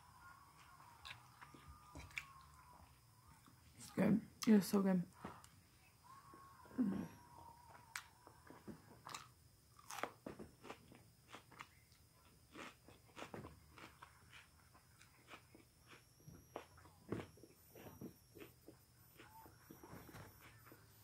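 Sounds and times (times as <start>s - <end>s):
chewing food with wet clicks: 9.0s - 17.3s.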